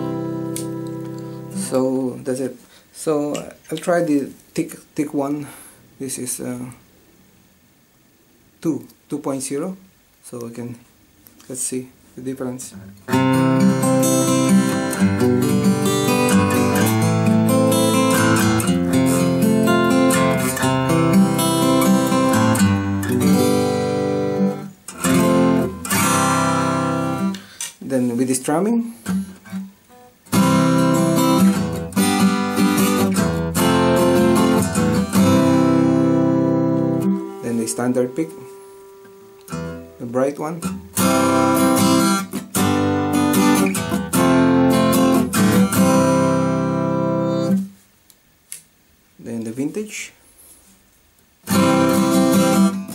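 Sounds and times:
acoustic guitar chords ringing: 0:00.0 - 0:04.2, 0:12.9 - 0:47.8, 0:51.4 - 0:52.9
acoustic guitar picked notes: 0:00.0 - 0:06.6, 0:12.3 - 0:47.8, 0:51.4 - 0:52.9.

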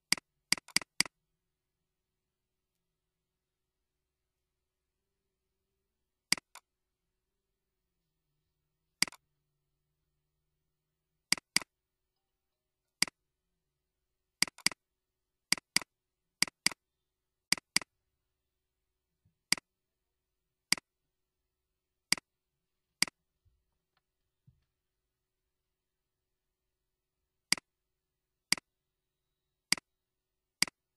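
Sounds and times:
computer mouse clicks: 0:00.1 - 0:01.1, 0:06.3 - 0:06.7, 0:09.0 - 0:09.2, 0:11.3 - 0:11.7, 0:14.4 - 0:14.8, 0:15.5 - 0:16.8, 0:17.5 - 0:17.9, 0:19.5 - 0:19.7.

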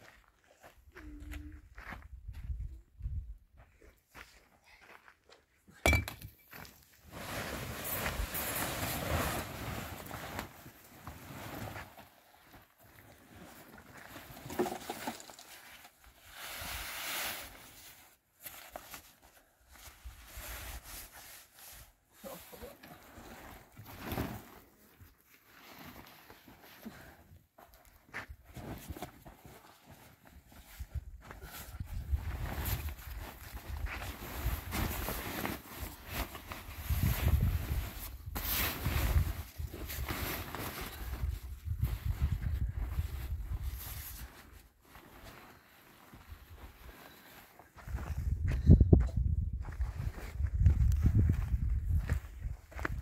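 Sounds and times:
wind rumble on microphone: 0:02.0 - 0:03.6, 0:30.8 - 0:34.7, 0:36.7 - 0:40.1, 0:41.0 - 0:44.2, 0:47.8 - 0:53.0
tent fabric rustling: 0:06.8 - 0:27.8, 0:28.4 - 0:48.2.

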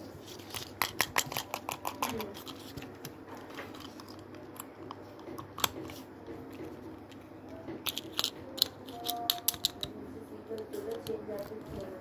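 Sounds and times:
plastic toy pieces clicking: 0:07.8 - 0:09.9.

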